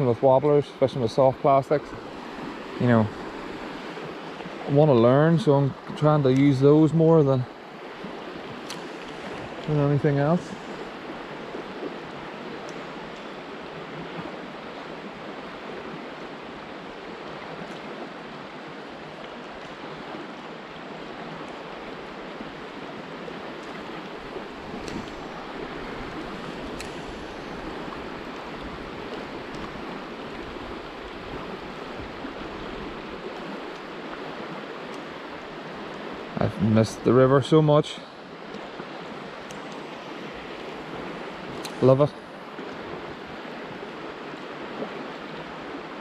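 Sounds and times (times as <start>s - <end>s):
river rushing over stones: 0.0s - 46.0s
faint clicks: 39.4s - 39.9s.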